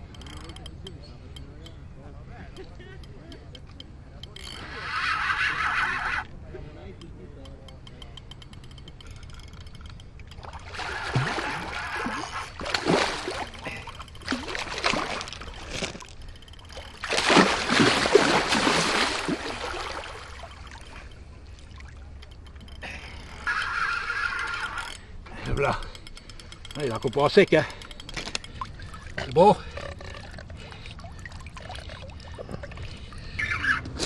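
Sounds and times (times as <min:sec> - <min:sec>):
fish thrashing and splashing: 0:10.3 - 0:22.8, 0:28.1 - 0:33.4.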